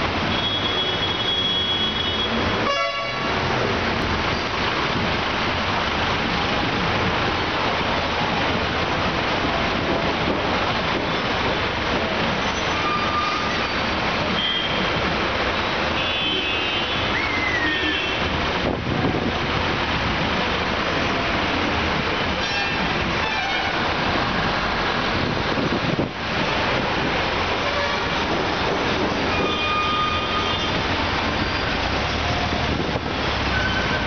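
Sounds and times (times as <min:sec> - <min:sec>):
truck and car engines passing: 0:30.0 - 0:34.0.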